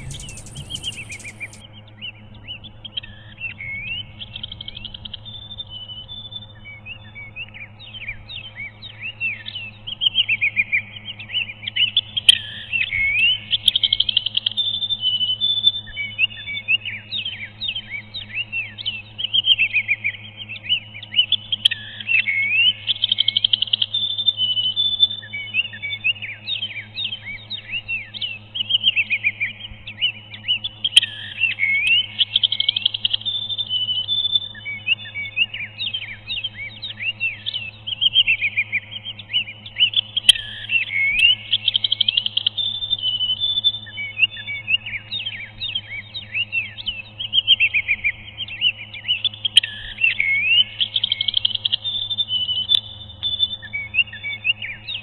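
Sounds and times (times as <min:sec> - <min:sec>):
sharp clicks: 0:00.0 - 0:01.6
songbird singing: 0:00.0 - 0:01.6, 0:10.6 - 0:55.0
faint low hum: 0:00.0 - 0:01.7
low steady hum: 0:00.0 - 0:03.4, 0:07.7 - 0:55.0.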